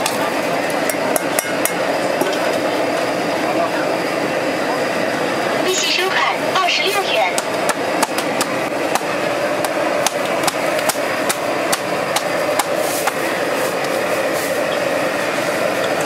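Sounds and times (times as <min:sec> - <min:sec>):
steady background rush: 0:00.0 - 0:16.0.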